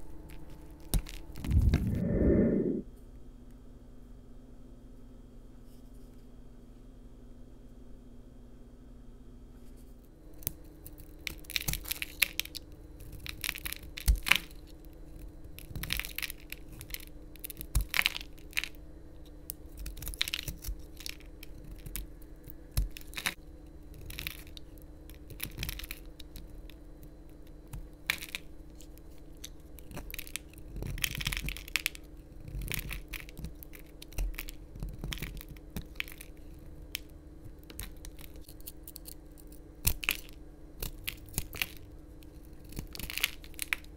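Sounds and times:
knife scraping soap: 0:28.8 - 0:36.7.

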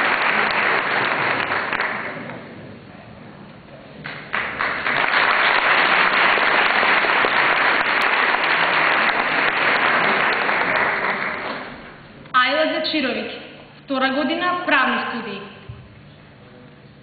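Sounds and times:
audience applauding: 0:00.0 - 0:02.5, 0:04.0 - 0:12.0.

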